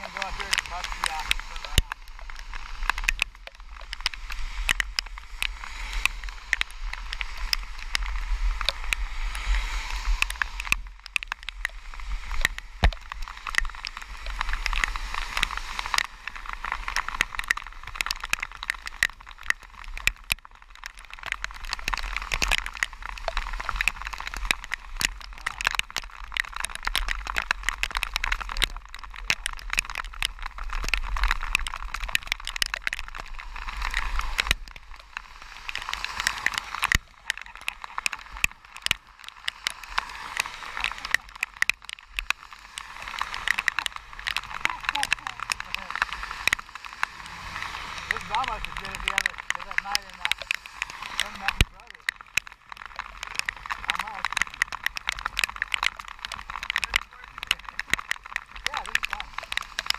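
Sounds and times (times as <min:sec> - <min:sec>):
heavy rain on camera housing: 0:00.0 - 0:59.9.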